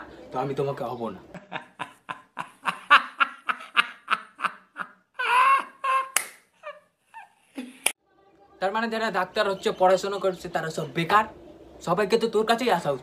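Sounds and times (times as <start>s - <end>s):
man laughing hard: 1.4s - 6.9s.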